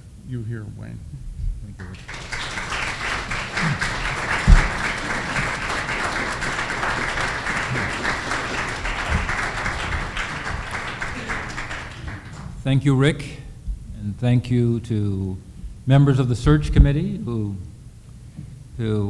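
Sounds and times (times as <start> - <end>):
audience applauding: 1.8 - 12.6
low thump: 4.4 - 4.9.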